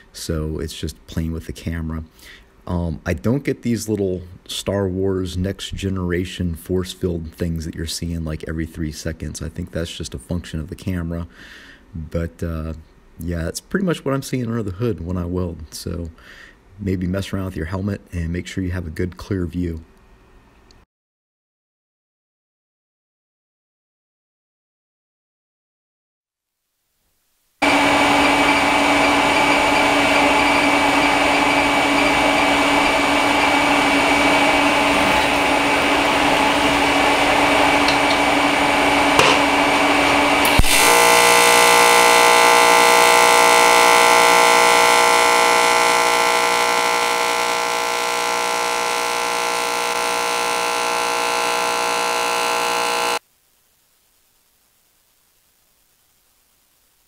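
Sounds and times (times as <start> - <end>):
welding arc buzzing: 27.6 - 53.2.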